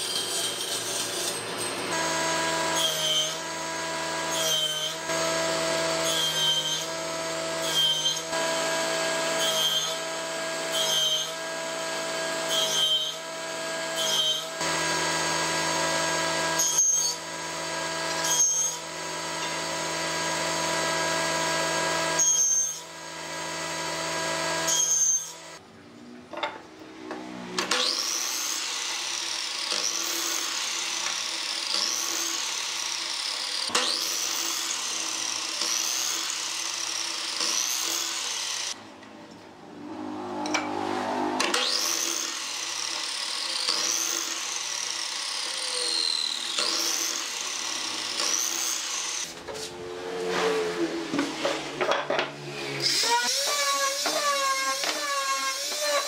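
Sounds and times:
table saw cutting wood: 0.0 - 25.6, 27.0 - 39.0, 39.7 - 56.0
miter saw chopping wood: 40.6 - 41.9.

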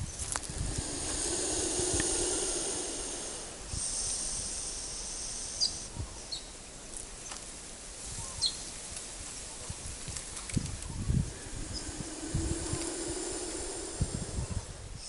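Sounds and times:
lizard hissing: 0.2 - 5.9, 11.0 - 15.0.

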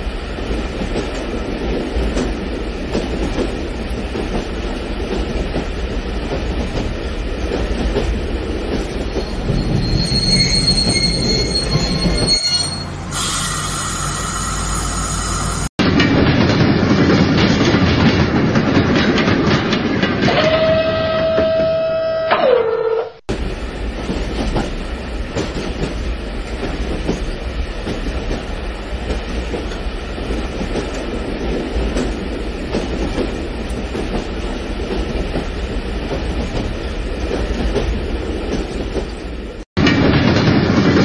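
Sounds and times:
wheel squeal: 9.2 - 15.7
horn-like tone: 20.3 - 23.2.

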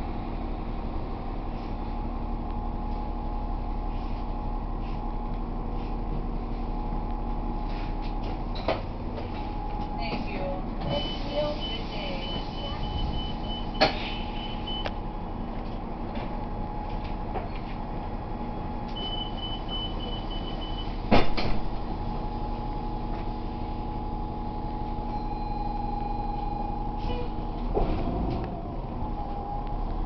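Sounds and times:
bus engine idling: 0.0 - 30.0
loud clunk: 21.1 - 21.7.

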